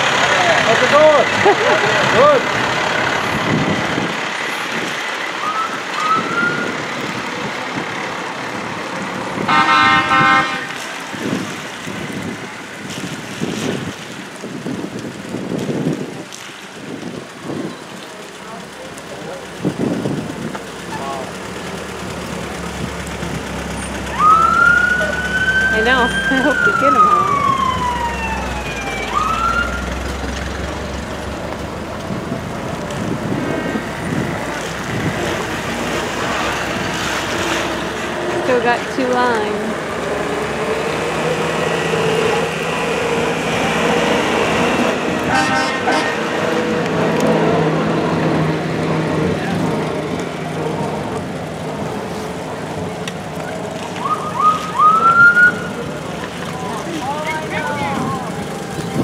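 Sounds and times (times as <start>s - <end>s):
fire truck siren: 0.0s - 8.6s, 9.3s - 11.1s, 22.3s - 36.5s, 38.1s - 59.0s
tyres on wet road: 0.0s - 59.0s
vehicle engines running: 0.0s - 59.0s
vehicle horn blast: 9.5s - 10.8s, 45.3s - 46.3s.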